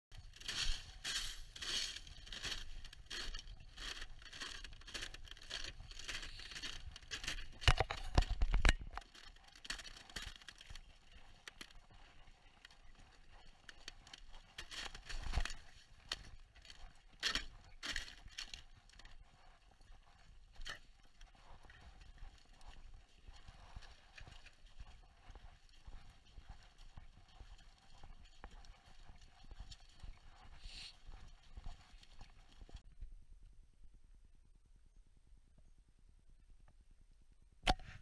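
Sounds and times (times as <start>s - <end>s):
footsteps crunching through snow: 0.1s - 8.2s, 9.1s - 32.8s.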